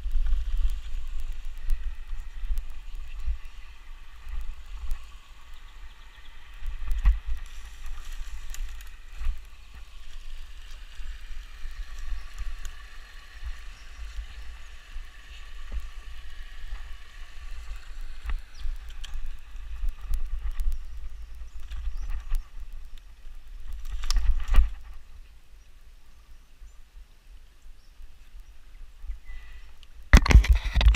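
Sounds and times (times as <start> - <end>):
tyres hissing on wet ground: 0.0 - 21.5
wind on microphone: 0.0 - 25.3, 28.8 - 30.9.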